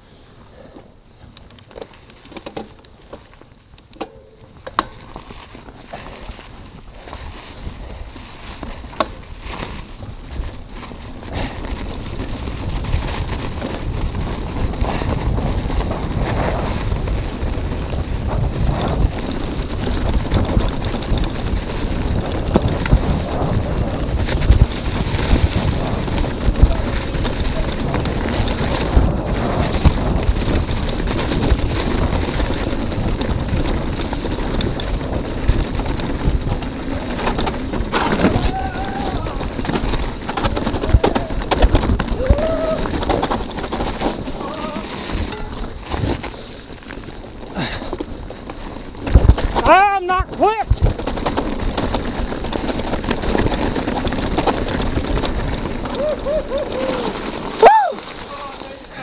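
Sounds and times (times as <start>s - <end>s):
bike tyres rolling over leaves: 0.0s - 59.0s
bike knocking over bumps: 1.6s - 7.7s, 8.4s - 59.0s
wind on microphone: 9.8s - 46.6s, 48.9s - 59.0s.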